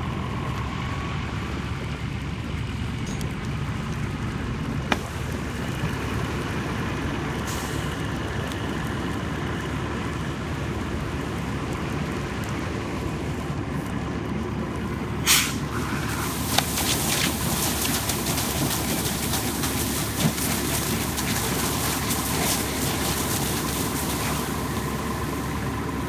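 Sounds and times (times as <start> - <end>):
low mechanical rumble: 0.0 - 26.0
sharp burst of hiss: 15.2 - 17.0.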